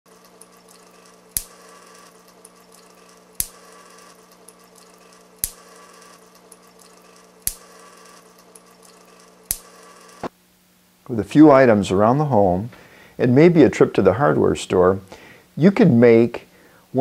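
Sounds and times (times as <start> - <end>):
electric sparks cracking: 0.1 - 10.3.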